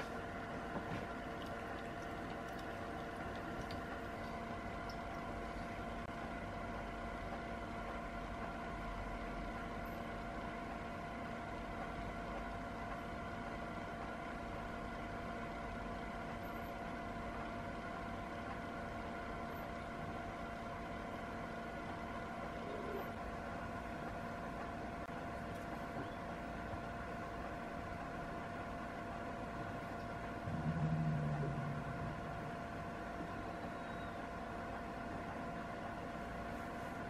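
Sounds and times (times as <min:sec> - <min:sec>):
machine hum: 0:00.0 - 0:37.0.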